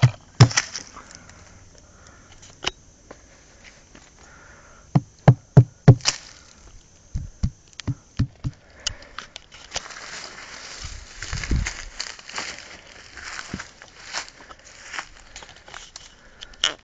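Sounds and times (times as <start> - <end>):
dull knocks: 4.9 - 6.1, 7.1 - 8.6.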